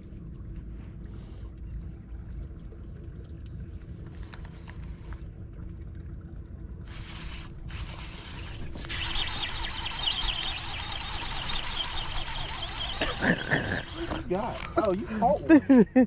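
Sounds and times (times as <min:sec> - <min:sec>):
electric trolling motor humming: 0:06.8 - 0:15.5.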